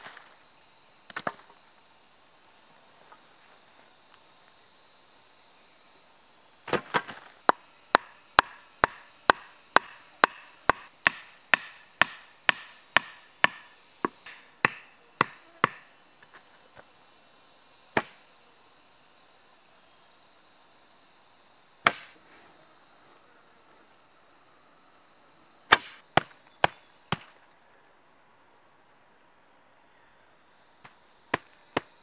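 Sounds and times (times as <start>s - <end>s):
blade chopping wood: 1.1s - 1.5s, 6.7s - 15.8s, 18.0s - 18.2s, 21.8s - 22.2s, 25.7s - 27.4s.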